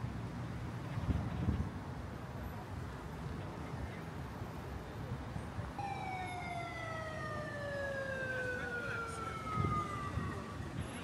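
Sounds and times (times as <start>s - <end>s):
street background noise: 0.0s - 11.0s
siren wailing: 5.8s - 10.8s.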